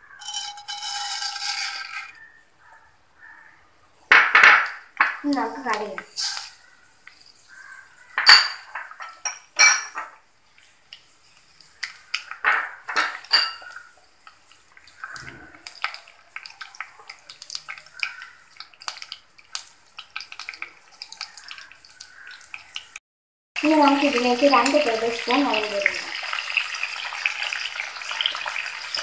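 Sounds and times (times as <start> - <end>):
seeds spluttering in hot oil: 0.0 - 2.3, 5.2 - 9.4, 10.4 - 23.0, 23.6 - 29.0
metal spoon clinking on pan: 0.2 - 2.2, 8.2 - 10.2, 12.4 - 13.8.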